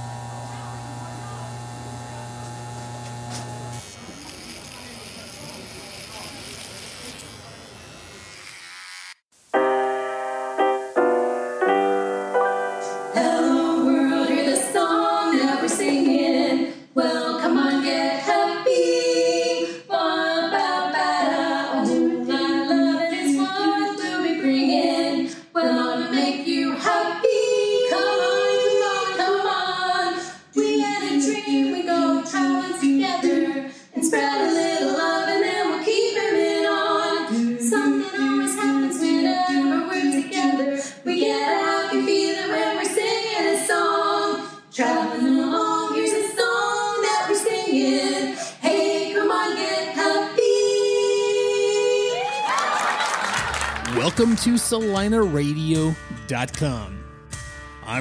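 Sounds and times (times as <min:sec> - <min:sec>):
women singing a cappella harmony: 0:12.8 - 0:52.5.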